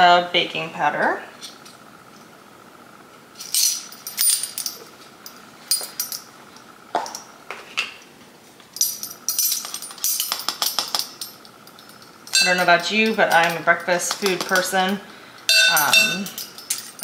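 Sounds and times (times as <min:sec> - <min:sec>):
metal measuring spoons jingling: 0:08.8 - 0:17.0.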